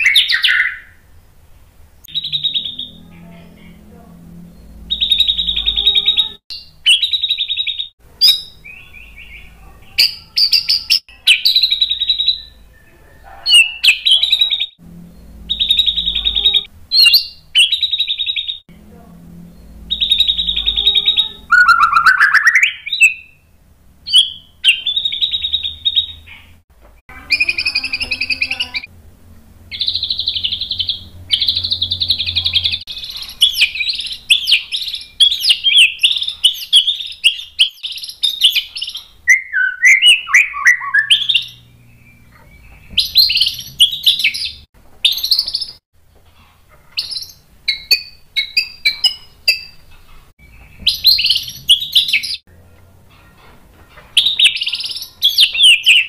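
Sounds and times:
bird singing whistled phrases: 0:00.0 - 0:01.0, 0:02.1 - 0:03.2, 0:04.6 - 0:14.8, 0:15.4 - 0:18.6, 0:19.9 - 0:23.4, 0:24.1 - 0:26.3, 0:29.7 - 0:45.8, 0:50.8 - 0:52.4, 0:54.2 - 0:56.0.

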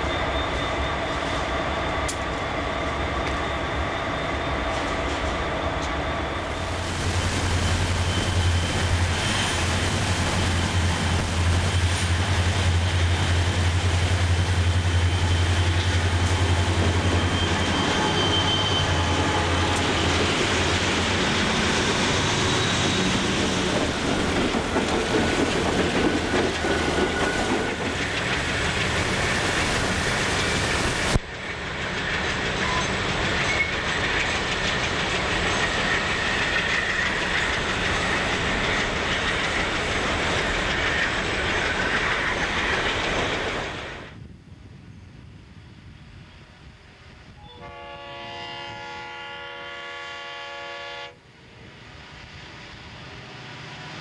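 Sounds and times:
train cars rolling on rails: 0:00.0 - 0:44.3
locomotive engine rumble: 0:05.7 - 0:44.3.

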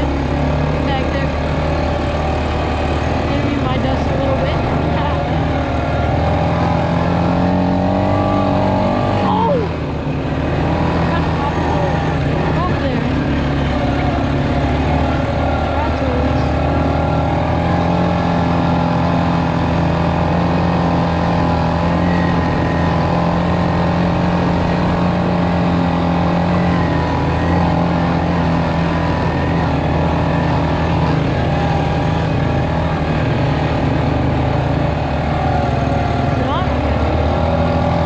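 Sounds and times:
quad engine droning: 0:00.0 - 0:38.0.

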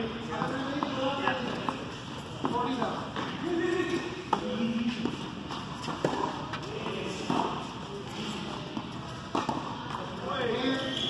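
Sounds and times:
tennis ball hit by rackets: 0:02.4 - 0:07.7, 0:08.8 - 0:09.8
ball bouncing on hard court: 0:08.6 - 0:10.0.

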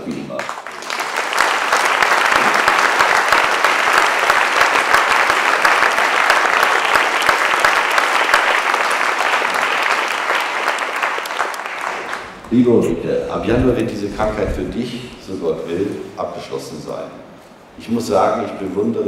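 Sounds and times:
audience applauding: 0:00.0 - 0:12.7.

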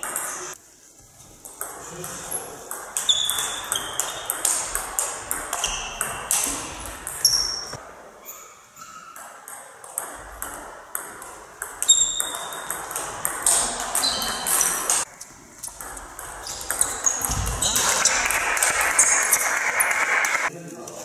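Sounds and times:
table tennis ball hits: 0:00.0 - 0:00.5, 0:01.5 - 0:07.8, 0:09.0 - 0:20.5
burst of noise: 0:17.2 - 0:20.5.

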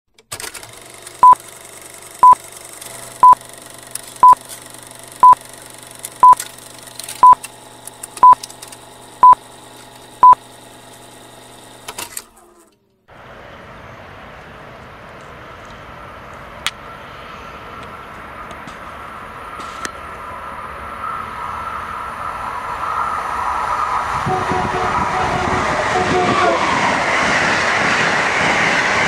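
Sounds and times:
steady outdoor noise: 0:00.3 - 0:29.0
short high beeps: 0:06.2 - 0:06.4.

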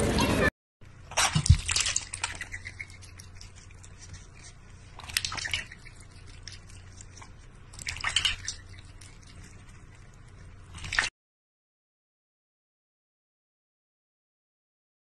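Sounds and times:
water splashing and dripping: 0:01.1 - 0:03.5, 0:05.0 - 0:07.1, 0:07.7 - 0:09.4.

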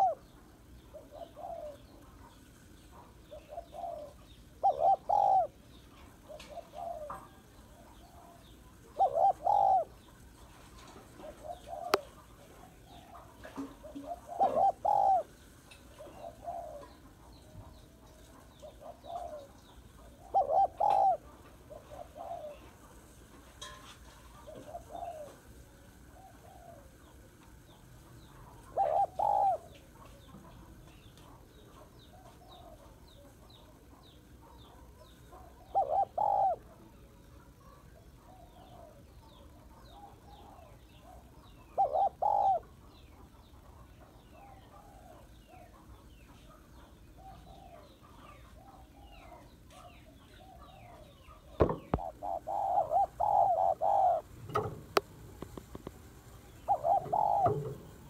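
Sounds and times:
dove cooing: 0:00.0 - 0:23.1, 0:24.2 - 0:58.0.

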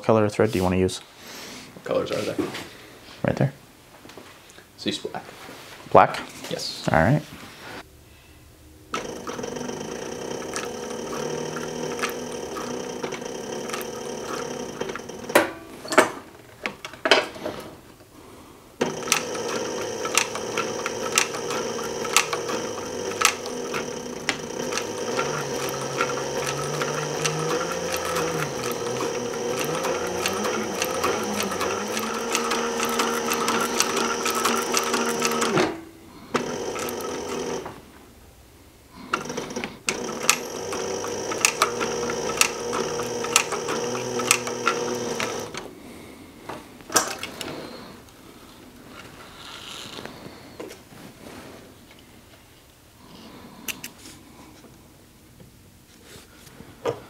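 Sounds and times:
sewing machine stitching: 0:08.9 - 0:15.5, 0:18.8 - 0:37.7, 0:39.0 - 0:45.7.

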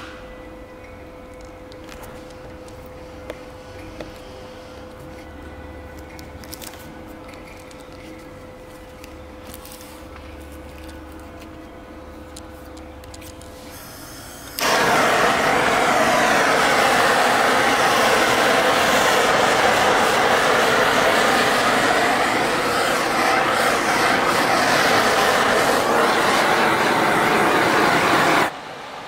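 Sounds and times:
gas torch hissing: 0:13.4 - 0:28.9.

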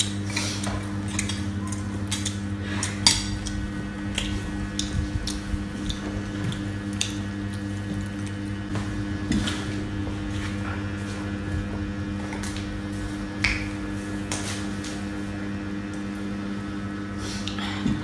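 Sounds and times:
steady electrical hum: 0:00.0 - 0:18.0.

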